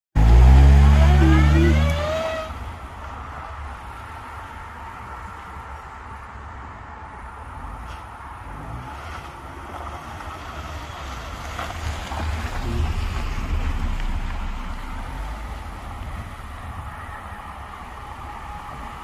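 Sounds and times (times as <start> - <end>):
car driving past on dirt: 0.2 - 2.6, 7.7 - 17.2
wind rumble on microphone: 9.3 - 19.0.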